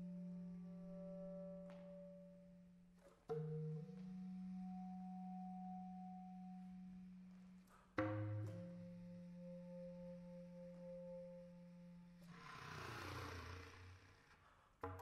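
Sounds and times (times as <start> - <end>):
bass clarinet low notes: 0.0 - 7.6.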